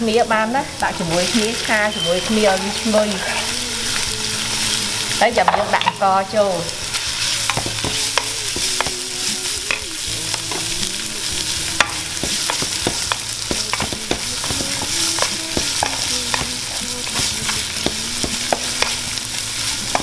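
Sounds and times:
garlic sizzling in oil: 0:00.0 - 0:20.0
spatula tapping and scraping pan: 0:05.4 - 0:06.0, 0:06.9 - 0:10.8, 0:11.8 - 0:20.0.

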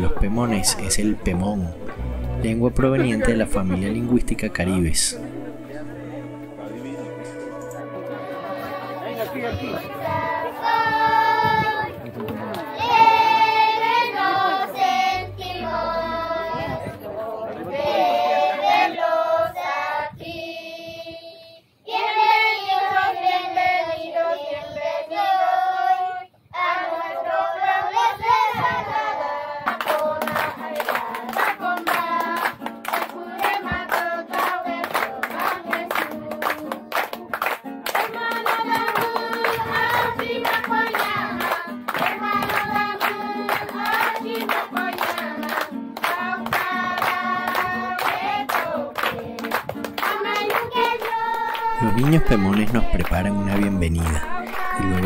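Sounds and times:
children singing: 0:03.5 - 0:36.9, 0:38.0 - 0:55.0
rhythmic hand clapping: 0:05.1 - 0:14.6, 0:29.7 - 0:55.0.

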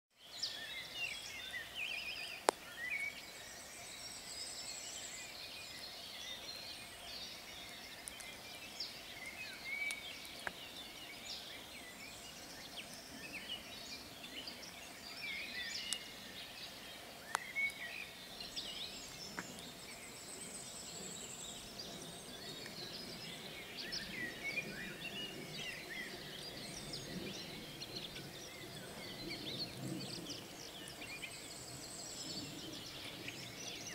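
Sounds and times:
songbirds singing: 0:00.1 - 0:33.9.

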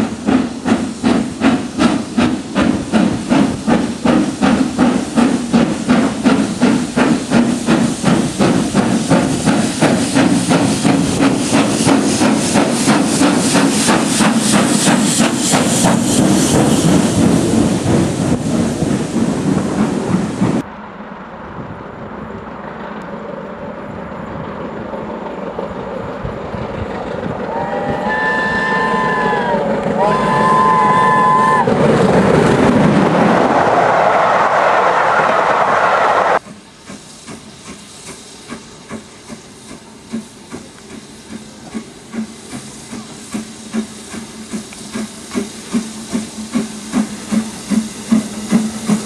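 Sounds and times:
hissing steam: 0:00.0 - 0:20.7, 0:26.1 - 0:49.0
steam locomotive exhaust beats: 0:00.0 - 0:20.7, 0:21.6 - 0:49.0
steady train noise: 0:00.0 - 0:49.0
steam locomotive whistle: 0:27.4 - 0:31.8.

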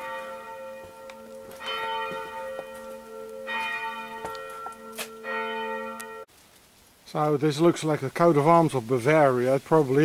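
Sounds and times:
church bell tolling: 0:00.0 - 0:06.3.

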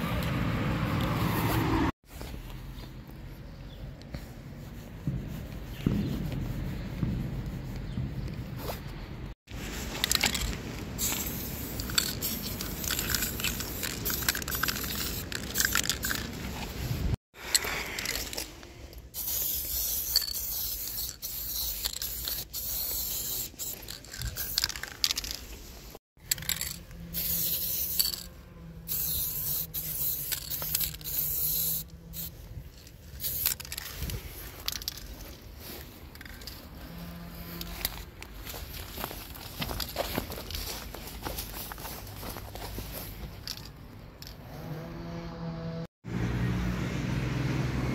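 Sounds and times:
scraping and handling noise: 0:08.6 - 0:19.2, 0:19.9 - 0:44.5
spray paint can hissing: 0:10.0 - 0:18.5, 0:19.1 - 0:35.0.

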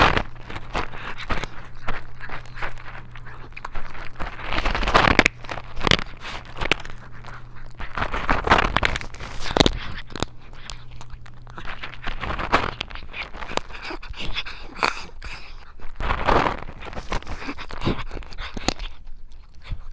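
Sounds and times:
cat crunching dry kibble: 0:00.0 - 0:19.9.

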